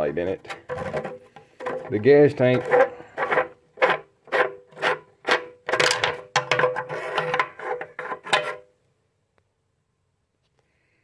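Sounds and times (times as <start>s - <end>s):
metal fuel cap threads grating: 0.3s - 8.7s.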